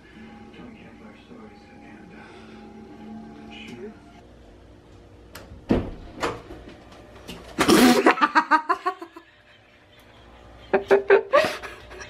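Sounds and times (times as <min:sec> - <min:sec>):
thumps at a doorway: 0:05.6 - 0:06.6
woman laughing loudly: 0:07.7 - 0:12.0.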